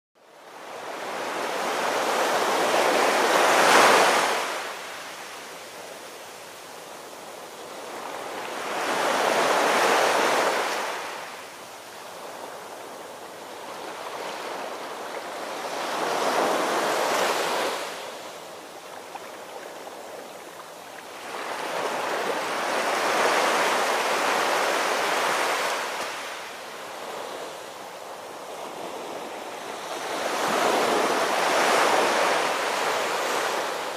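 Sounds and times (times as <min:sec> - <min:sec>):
ocean waves breaking: 0:12.1 - 0:33.9.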